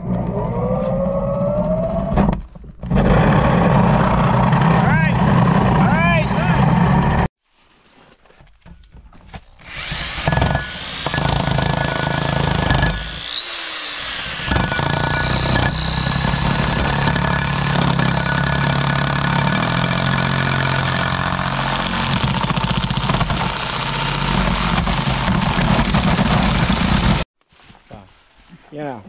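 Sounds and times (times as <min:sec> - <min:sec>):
electric drill cutting with hole saw: 0:09.6 - 0:27.3.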